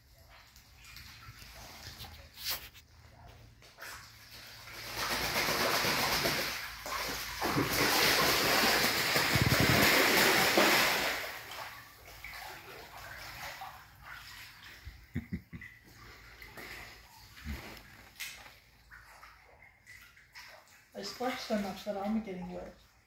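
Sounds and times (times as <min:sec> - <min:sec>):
duck splashing in water: 0:03.7 - 0:21.8.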